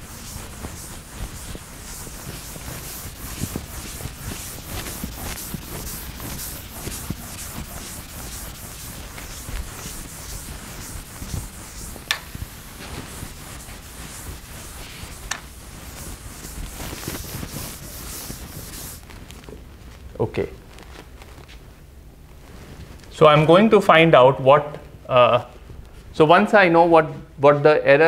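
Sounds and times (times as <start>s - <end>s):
eraser rubbing on blackboard: 0.0s - 19.2s.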